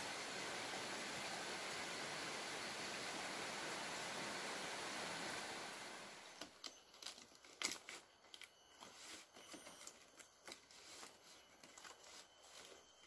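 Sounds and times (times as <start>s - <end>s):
palm leaves rustling and crinkling: 6.3s - 13.0s.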